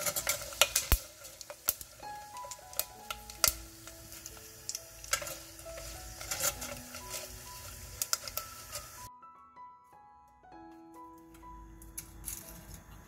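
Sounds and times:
seaweed sizzling in hot oil: 0.0 - 9.1
soft background music: 0.0 - 13.0.

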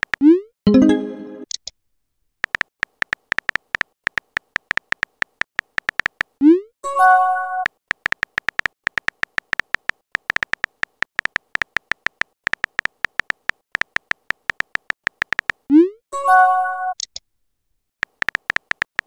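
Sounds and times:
phone keyboard tap clicks: 2.4 - 6.3, 7.9 - 15.6, 18.0 - 19.0.

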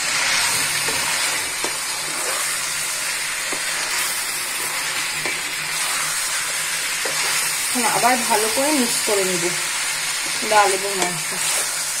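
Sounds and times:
food sizzling in oil: 0.0 - 12.0
wooden spatula stirring: 0.5 - 2.7.

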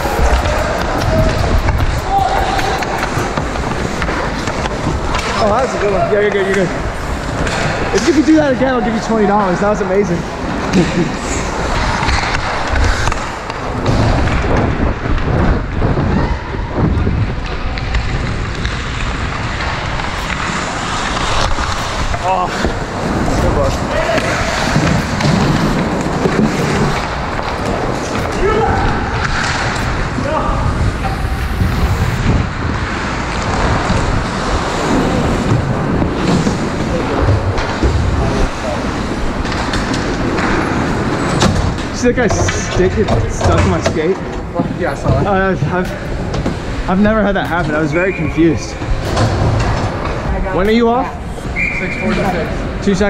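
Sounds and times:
wind on microphone: 0.0 - 5.1, 13.9 - 20.2, 28.2 - 37.0
skate blades scraping ice: 0.0 - 8.3, 17.5 - 37.8
clicks of sticks and puck: 11.6 - 15.4, 17.4 - 28.4, 29.2 - 30.0.

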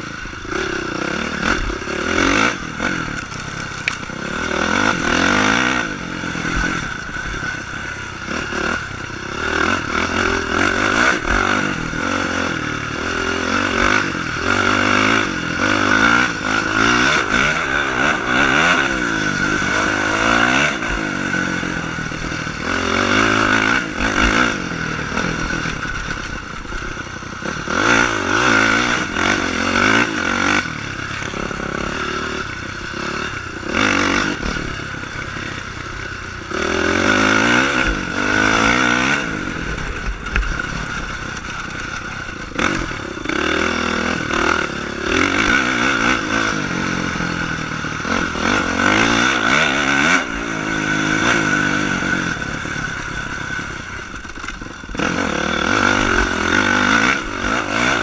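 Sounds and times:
dirt bike engine revving: 0.0 - 58.0
bike knocks and rattles: 3.1 - 4.2.

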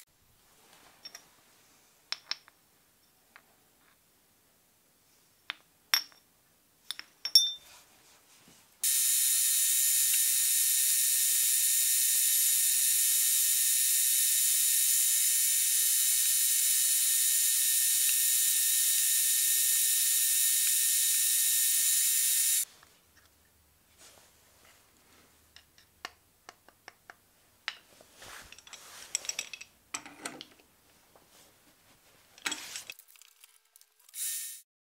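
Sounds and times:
metal clinks: 6.9 - 7.6.

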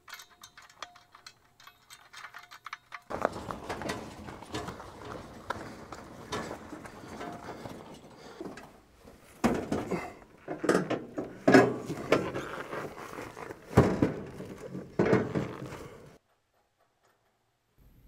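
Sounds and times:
small clicks and rattles: 0.0 - 8.8
scraping and handling noise: 0.0 - 16.2
heavy clunks and knocks: 3.1 - 16.2.

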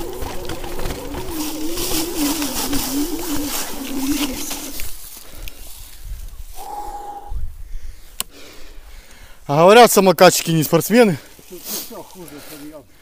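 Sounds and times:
electric motor whining: 0.0 - 5.0
steady higher whine: 0.0 - 5.1
tyre noise on rough trail: 0.0 - 9.5.

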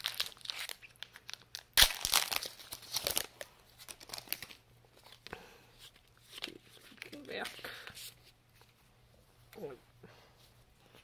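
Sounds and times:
foil wrapper tearing: 0.0 - 4.6
foil wrapper crinkling: 0.0 - 5.2.

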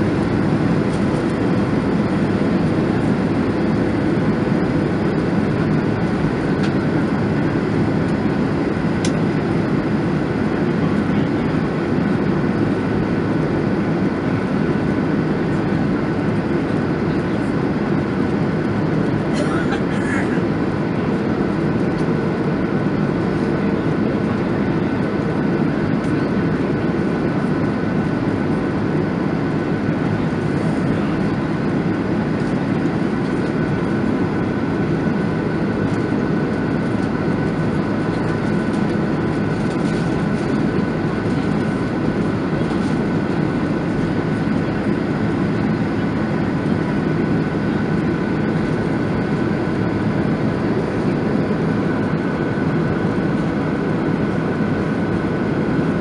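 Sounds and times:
aircraft cabin drone: 0.0 - 56.0.

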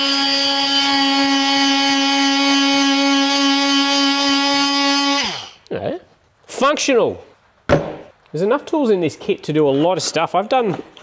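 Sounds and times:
oscillating multi-tool buzzing: 0.0 - 5.6.

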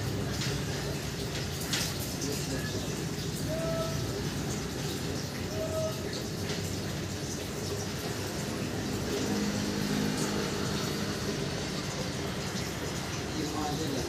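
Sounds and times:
rain falling: 0.0 - 14.0.

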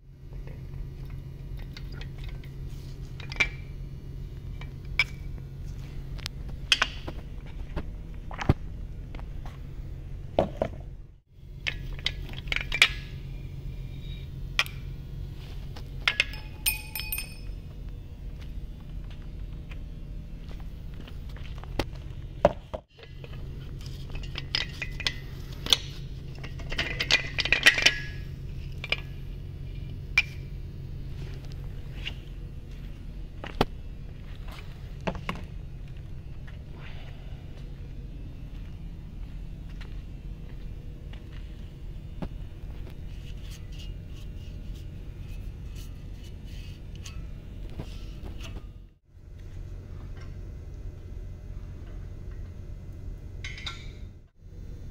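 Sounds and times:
steady low hum: 0.0 - 54.9
metal parts clinking: 16.0 - 17.5.

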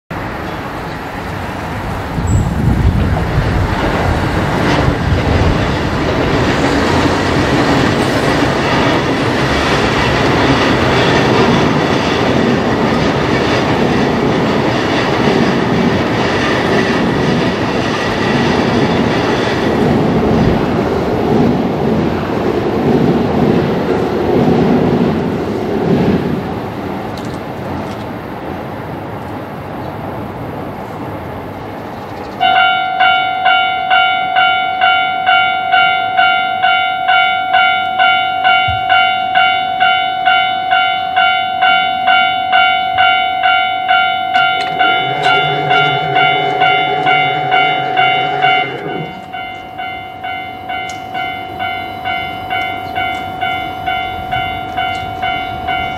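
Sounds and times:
train rumbling on tracks: 0.1 - 55.9.

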